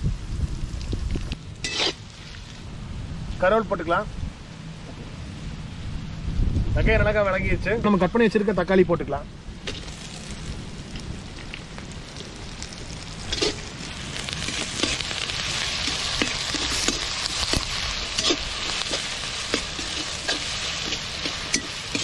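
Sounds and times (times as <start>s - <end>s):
vegetables sizzling in oil: 0.0s - 2.7s, 9.6s - 22.0s
metal spatula scraping pan: 1.6s - 2.0s, 15.9s - 22.0s.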